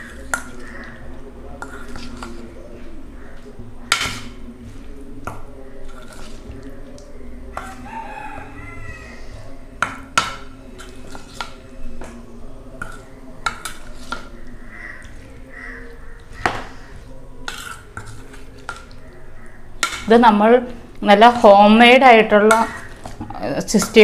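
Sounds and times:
spoon scraping metal bowl: 0:00.0 - 0:02.6, 0:03.2 - 0:07.0, 0:07.6 - 0:12.0, 0:12.7 - 0:20.3, 0:21.1 - 0:24.0.

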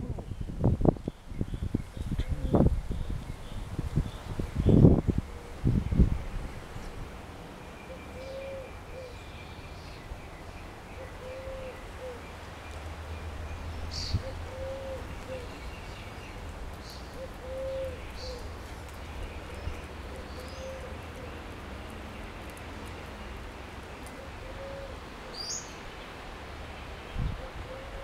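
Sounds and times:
songbirds chirping and trilling: 0:00.0 - 0:28.0
dove cooing: 0:07.9 - 0:09.2, 0:11.0 - 0:12.3, 0:14.1 - 0:15.6, 0:17.1 - 0:18.6, 0:19.4 - 0:21.5, 0:24.0 - 0:25.6, 0:27.4 - 0:28.0.

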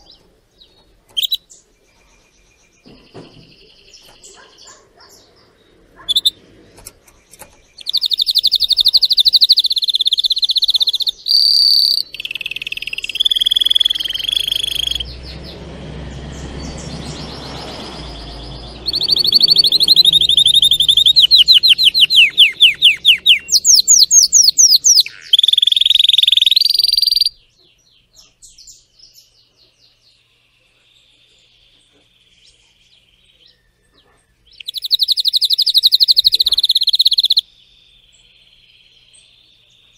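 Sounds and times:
faint bird chirps: 0:00.0 - 0:15.3, 0:16.8 - 0:39.9
canary singing trills: 0:00.0 - 0:39.9
low rumble: 0:15.0 - 0:19.0.

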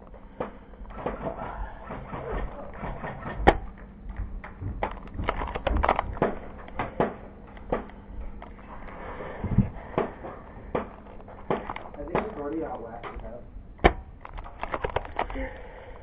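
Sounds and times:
airsoft clicks and knocks: 0:00.0 - 0:16.0
sharp crack: 0:10.0 - 0:15.7.

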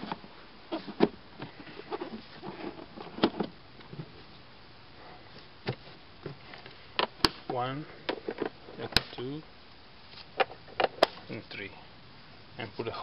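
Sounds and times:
plastic rubbing: 0:00.0 - 0:04.4.

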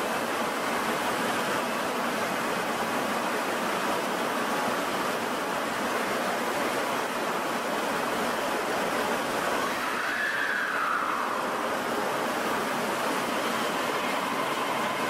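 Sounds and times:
station ventilation noise: 0:00.0 - 0:15.0
subway train humming: 0:07.9 - 0:15.0
faint rising and falling tone: 0:09.6 - 0:15.0.

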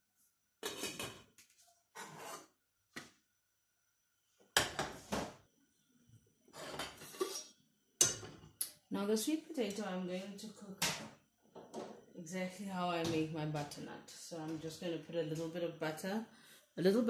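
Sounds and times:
pot scraping on burner grate: 0:00.6 - 0:01.2, 0:01.9 - 0:02.6, 0:06.5 - 0:07.5.

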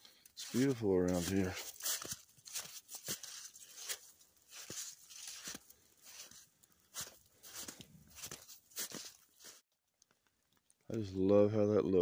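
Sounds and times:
footsteps in melting snow: 0:00.1 - 0:09.6.

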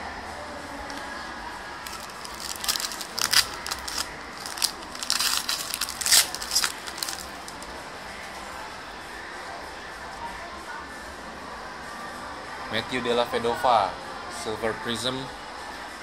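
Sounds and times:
foil wrapper crinkling: 0:01.9 - 0:07.6.

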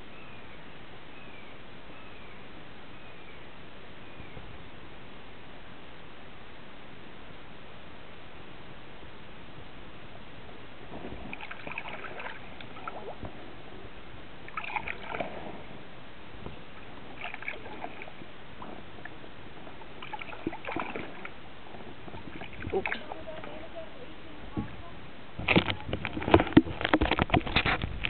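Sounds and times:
paddle splashing water: 0:10.3 - 0:28.0.

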